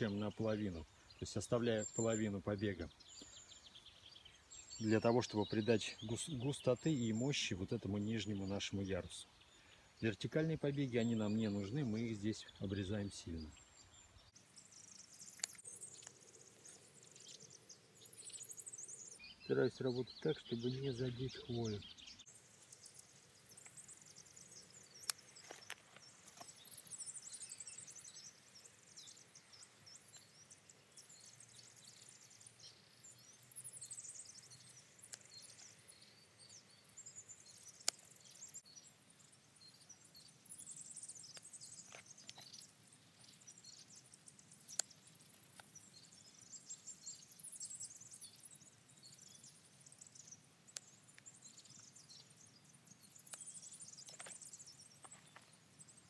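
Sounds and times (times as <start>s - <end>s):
rustling of pine needles: 0.0s - 38.6s.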